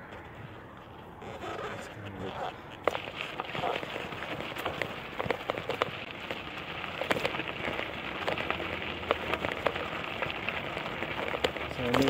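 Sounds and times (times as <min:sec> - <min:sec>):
bicycle riding hiss: 0:02.3 - 0:12.0
bicycle clicks and ticks: 0:02.7 - 0:12.0.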